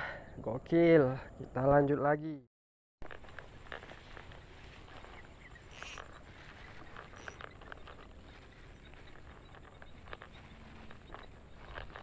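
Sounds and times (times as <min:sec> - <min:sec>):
fishing reel clicks and ticks: 0:05.7 - 0:06.2, 0:06.8 - 0:08.2.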